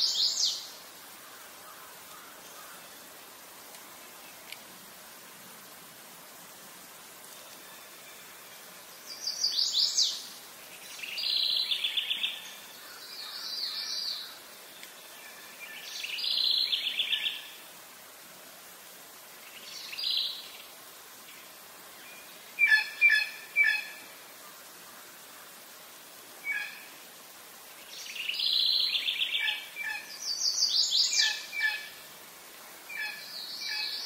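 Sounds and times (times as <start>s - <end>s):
faint outdoor hiss: 0.0s - 34.0s.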